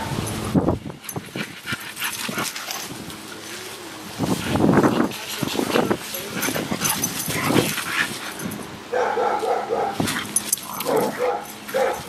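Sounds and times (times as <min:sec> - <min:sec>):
dogs play growling: 0:00.9 - 0:12.0
dog barking: 0:08.9 - 0:10.0, 0:10.8 - 0:12.0.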